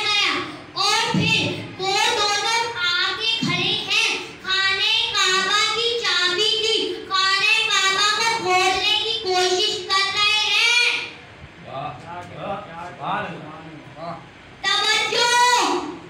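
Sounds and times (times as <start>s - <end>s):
boy chanting into microphone: 0.0s - 10.2s.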